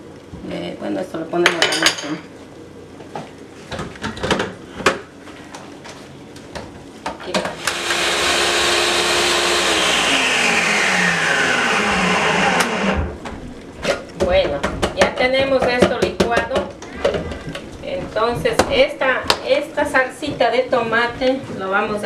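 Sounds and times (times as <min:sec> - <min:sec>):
blender motor running: 0:07.4 - 0:13.1.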